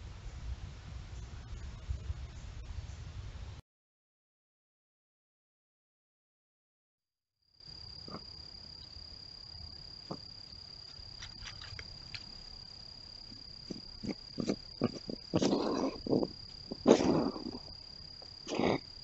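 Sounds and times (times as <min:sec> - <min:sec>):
insects trilling: 0:07.6 - 0:19.0
clicks and rustles: 0:10.8 - 0:12.5
loud rough noises: 0:13.7 - 0:17.7.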